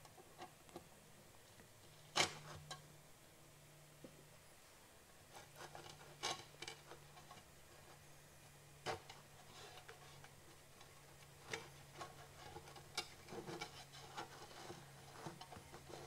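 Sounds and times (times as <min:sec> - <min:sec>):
faint low hum: 0:00.0 - 0:16.0
tool clicks and scrapes: 0:08.9 - 0:16.0.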